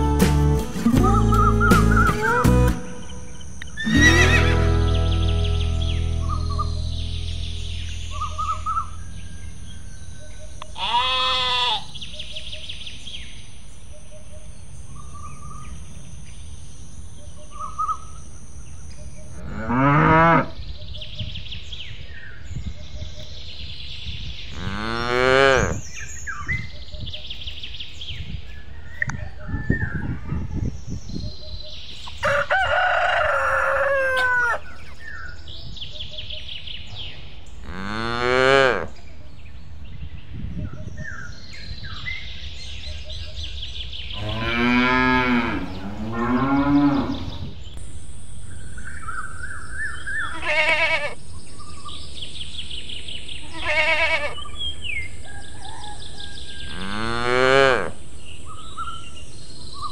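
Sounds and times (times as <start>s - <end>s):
birds chirping: 0.0s - 59.9s
rooster crowing: 32.2s - 34.8s.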